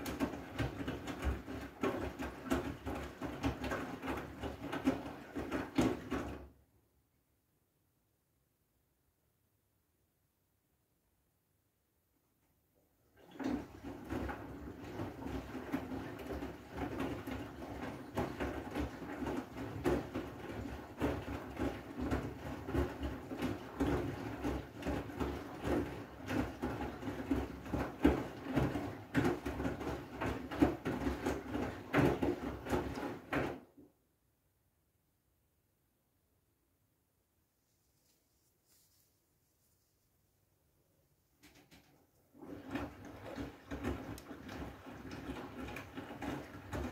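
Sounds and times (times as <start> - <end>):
clothes knocking and sloshing in drum: 0.0 - 6.5, 13.1 - 33.8, 41.4 - 46.9
washing machine motor hum: 0.0 - 6.6, 13.1 - 33.8, 41.4 - 46.9.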